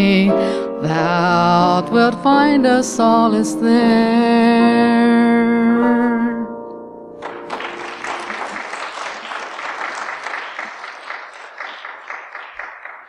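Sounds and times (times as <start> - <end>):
piano chord: 0.0 - 8.8
congregation applauding: 7.2 - 13.0.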